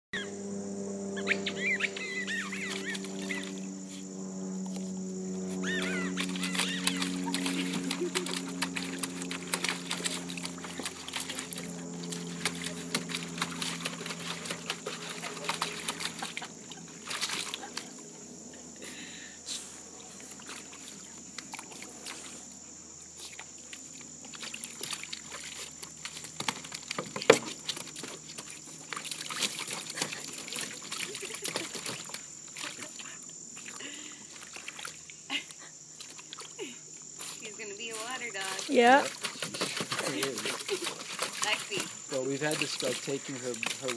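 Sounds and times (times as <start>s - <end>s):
low hum: 0.2s - 22.8s
insects buzzing: 0.2s - 43.9s
puppy splashing in water: 1.2s - 3.7s, 5.1s - 19.0s, 20.0s - 43.9s.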